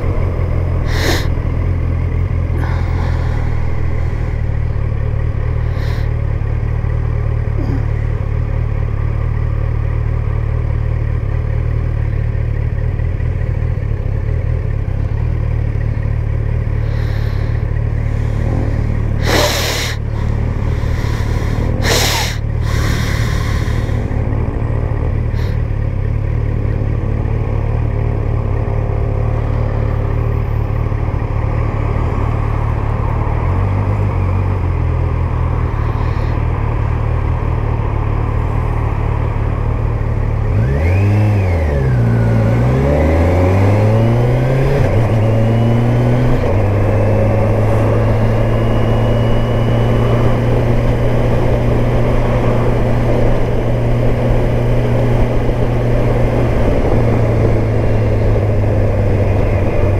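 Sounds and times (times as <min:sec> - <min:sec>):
motorcycle engine running: 0:00.0 - 0:59.9
wind rush: 0:08.4 - 0:10.4, 0:16.9 - 0:25.8.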